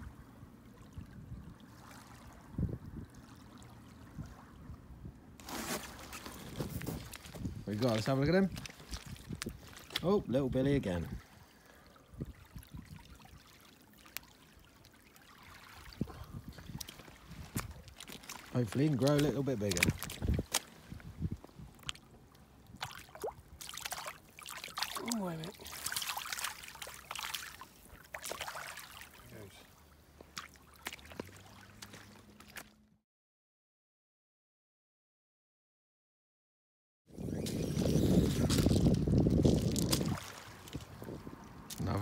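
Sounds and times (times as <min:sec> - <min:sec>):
water trickling over mud: 0:05.4 - 0:32.8, 0:37.4 - 0:42.0.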